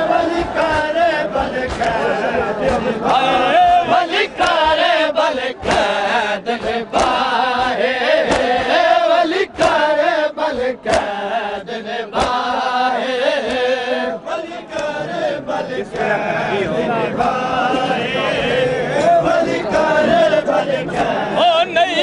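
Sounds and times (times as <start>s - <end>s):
men chanting a lament: 0.0s - 22.0s
hands slapping chests: 0.4s - 9.9s, 10.5s - 11.2s, 12.1s - 13.8s, 14.7s - 15.0s.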